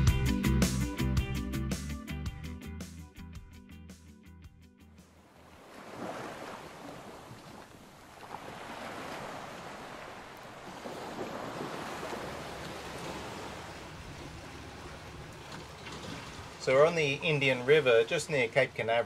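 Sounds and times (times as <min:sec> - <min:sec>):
churning water of boat wake: 0:05.3 - 0:19.0.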